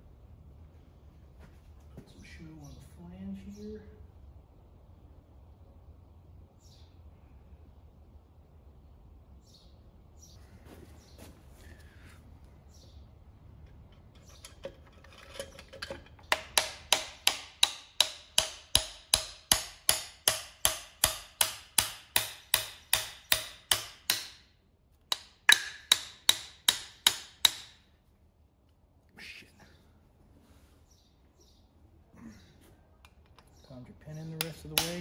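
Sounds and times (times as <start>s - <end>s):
sharp metal taps: 13.6s - 24.5s, 25.1s - 27.9s, 34.3s - 35.0s.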